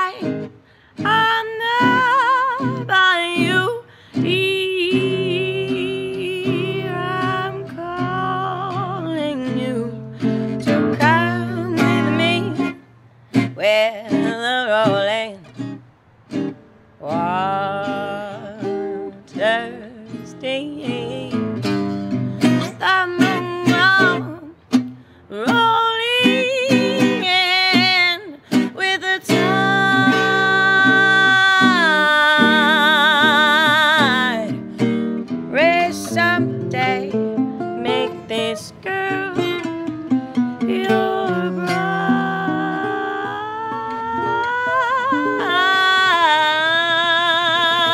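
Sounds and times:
woman singing with vibrato: 0.0s - 12.8s, 13.4s - 15.8s, 17.0s - 47.9s
jazz guitar: 0.0s - 47.9s.

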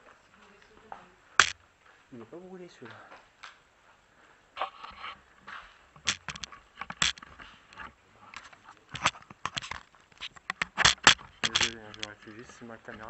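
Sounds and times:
handling clicks and rustles: 0.0s - 1.9s, 4.6s - 13.0s
footsteps: 0.0s - 13.0s.

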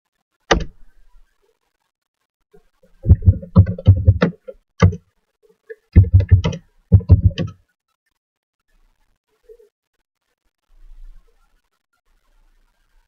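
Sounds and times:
loud dull knocks and clicks: 3.0s - 5.0s, 6.0s - 7.6s.

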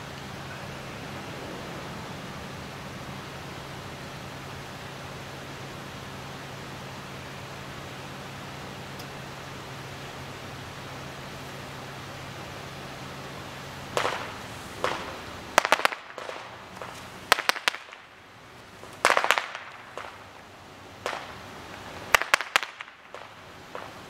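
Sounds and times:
fireworks bangs and crackles: 13.9s - 24.0s.

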